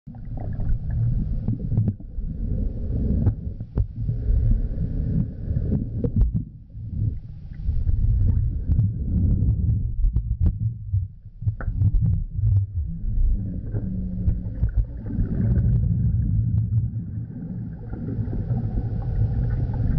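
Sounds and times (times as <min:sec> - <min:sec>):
underwater rumbling of churned water: 0:00.0 - 0:19.9.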